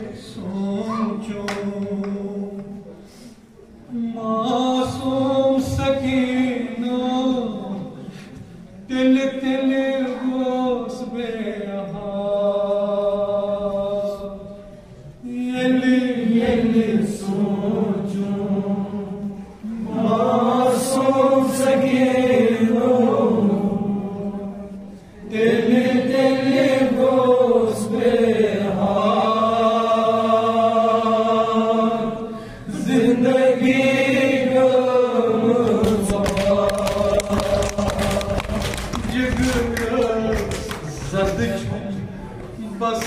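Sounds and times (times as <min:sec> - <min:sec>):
man chanting a lament: 0:00.0 - 0:02.7, 0:03.9 - 0:08.1, 0:35.9 - 0:43.0.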